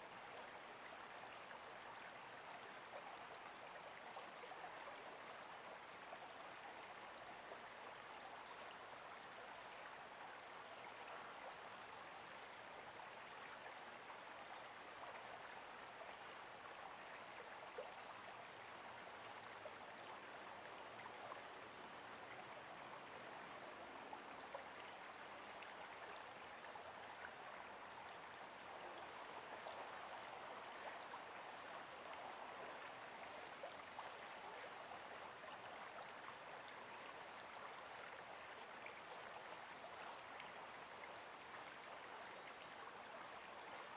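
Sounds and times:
stream babbling: 0:00.0 - 0:43.9.

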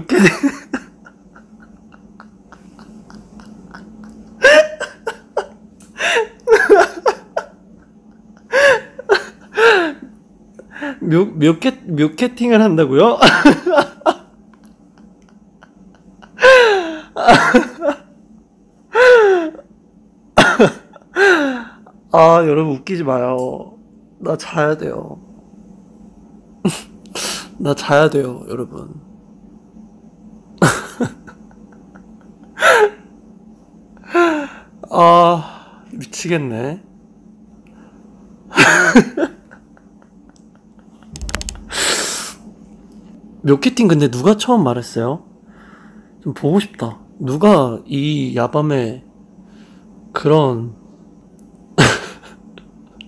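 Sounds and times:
man laughing: 0:00.0 - 0:10.1, 0:13.1 - 0:18.1, 0:20.4 - 0:22.0, 0:30.6 - 0:33.1, 0:38.6 - 0:42.0, 0:51.8 - 0:52.4.

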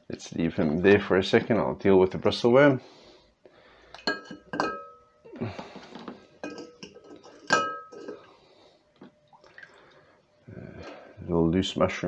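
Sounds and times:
rock clinking on glass dish: 0:04.0 - 0:05.1, 0:06.4 - 0:08.2.

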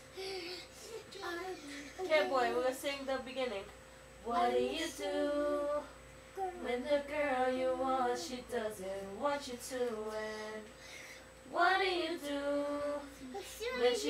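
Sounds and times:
child singing: 0:00.2 - 0:02.6, 0:11.7 - 0:14.0.

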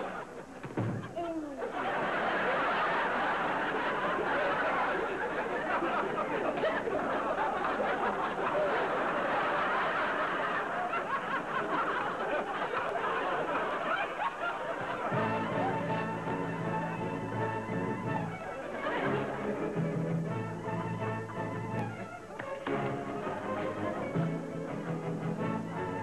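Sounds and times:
audience laughing: 0:00.0 - 0:26.0
music: 0:14.7 - 0:26.0.

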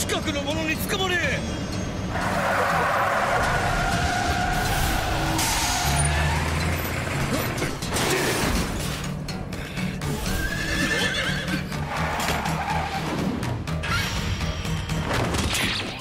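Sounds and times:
dramatic background music: 0:00.0 - 0:16.0
horse whinny: 0:10.2 - 0:12.9.

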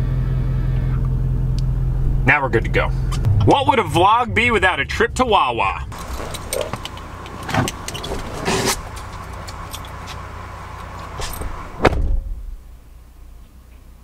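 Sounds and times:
truck door shutting: 0:05.9 - 0:10.2, 0:10.8 - 0:12.7
rustling and knocks in cab: 0:06.0 - 0:10.2, 0:10.8 - 0:12.4.

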